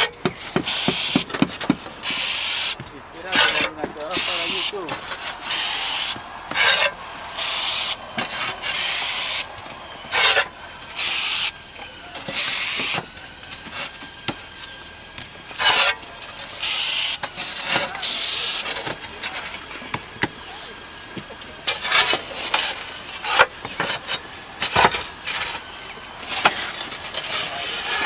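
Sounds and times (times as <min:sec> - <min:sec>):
foam gun hissing squirts: 0:00.4 - 0:01.3, 0:01.9 - 0:02.8, 0:04.1 - 0:09.5, 0:10.1 - 0:11.6, 0:15.5 - 0:18.8.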